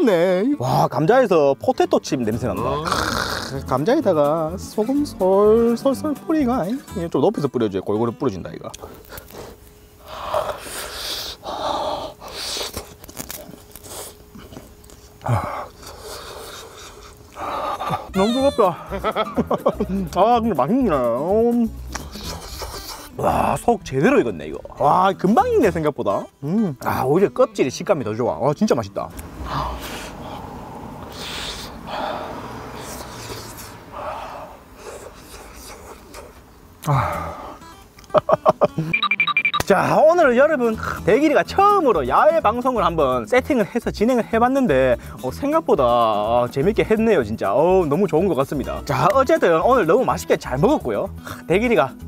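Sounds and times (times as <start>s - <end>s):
man chewing: 12.2s - 18.0s
person huffing breaths: 15.2s - 19.0s, 29.4s - 37.6s.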